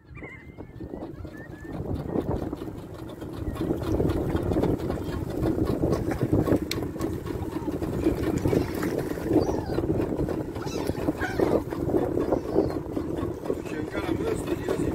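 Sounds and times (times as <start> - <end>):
motorboat engine running: 0.0 - 14.9
wind and water rushing: 0.0 - 14.9
faint gull calls: 8.4 - 12.9.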